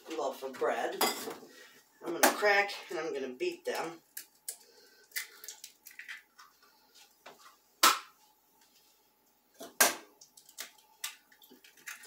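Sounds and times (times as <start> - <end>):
eggs cracking on metal bowl: 3.6 - 6.6, 9.6 - 12.0.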